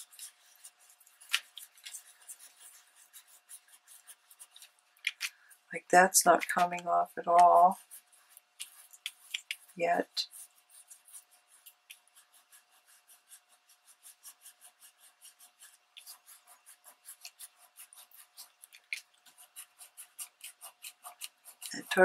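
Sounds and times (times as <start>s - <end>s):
cloth scrubbing damp paper: 0.0s - 22.0s.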